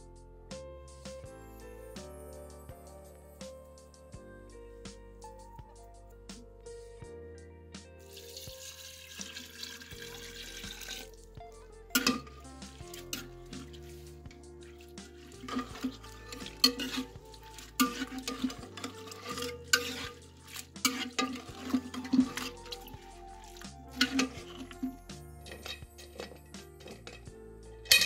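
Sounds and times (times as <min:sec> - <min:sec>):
background music: 0:00.0 - 0:28.0
water pouring into a metal pot: 0:08.0 - 0:27.3
metal spoon scraping a pot: 0:11.9 - 0:28.0.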